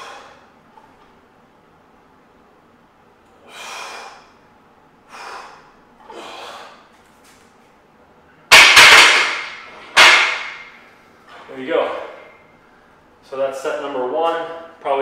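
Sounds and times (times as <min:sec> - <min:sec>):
person breathing forcefully: 0:00.0 - 0:00.6, 0:03.4 - 0:04.4, 0:05.0 - 0:06.9.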